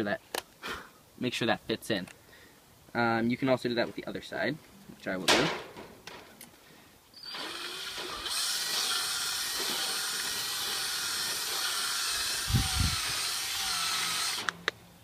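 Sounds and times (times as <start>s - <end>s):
cordless drill running: 7.2s - 14.7s.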